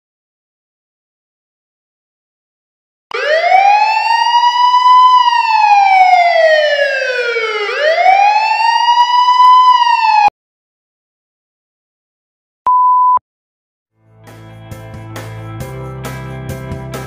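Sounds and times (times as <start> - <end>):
siren wailing: 3.1 - 10.3.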